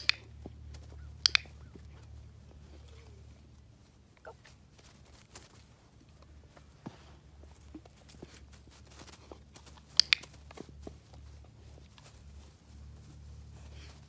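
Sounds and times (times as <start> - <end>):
sharp clicks: 0.0 - 1.8, 9.8 - 10.6
puppy scuffing on grass: 0.0 - 14.0.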